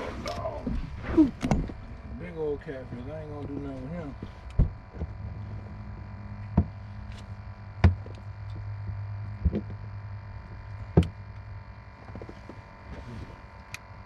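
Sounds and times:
steady low hum: 0.0s - 14.0s
sharp knocks on boat: 6.5s - 6.8s, 7.8s - 8.1s.

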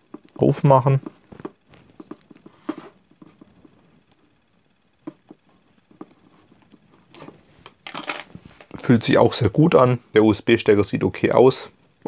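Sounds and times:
cable clicks and rustles: 6.6s - 9.0s.

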